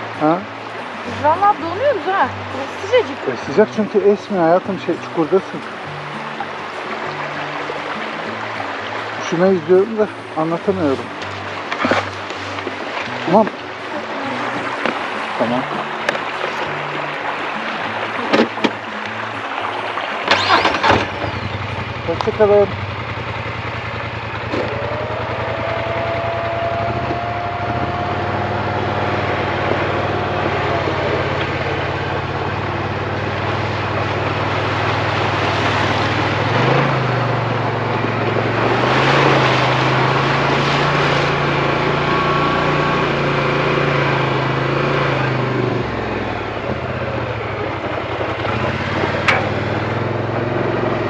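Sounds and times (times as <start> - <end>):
tyres splashing through water: 0.0 - 51.0
atv engine under throttle: 20.2 - 51.0.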